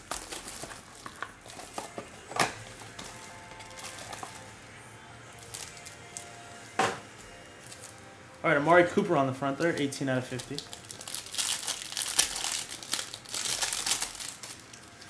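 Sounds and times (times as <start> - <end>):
plastic wrapper rustling and crinkling: 0.0 - 4.6, 5.4 - 6.4, 7.2 - 8.1, 8.8 - 15.0.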